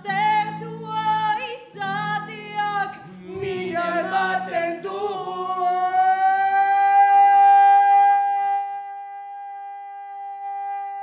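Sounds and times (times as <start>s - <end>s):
man singing long high note: 5.6s - 11.0s.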